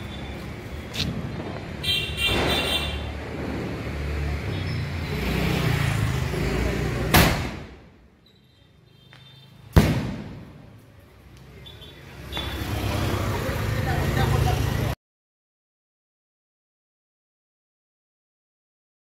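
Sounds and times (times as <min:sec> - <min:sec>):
firework bursting bang: 0:09.7 - 0:10.6
firework shell firing bang: 0:09.7 - 0:10.6.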